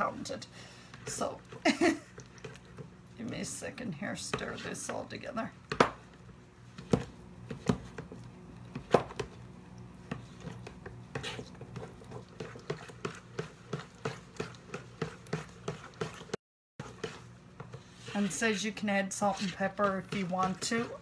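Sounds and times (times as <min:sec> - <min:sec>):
spoon tapping and scraping bowl: 0:19.2 - 0:21.0.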